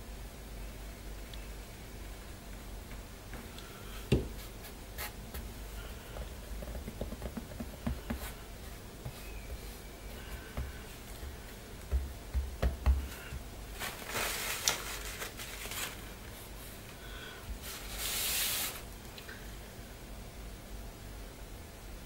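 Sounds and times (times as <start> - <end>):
soft knocks on book: 6.2 - 8.4.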